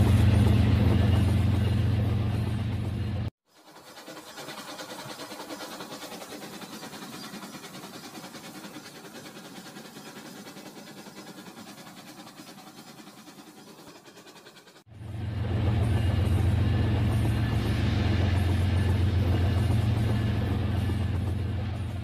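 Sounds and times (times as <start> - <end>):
toy train motor whirring: 3.5 - 14.9.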